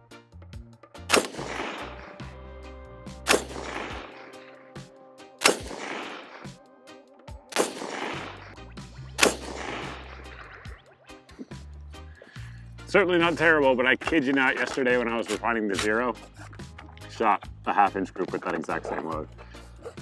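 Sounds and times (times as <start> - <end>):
rifle shots with echo: 1.1 - 2.3, 3.2 - 4.6, 5.4 - 6.6, 7.5 - 8.6, 9.2 - 10.6.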